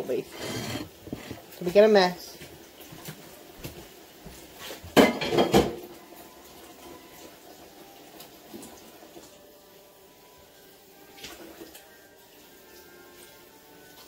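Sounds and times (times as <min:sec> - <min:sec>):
kitchenware clanking: 0:00.2 - 0:01.5, 0:04.9 - 0:05.8
faint handling sounds: 0:00.2 - 0:01.7.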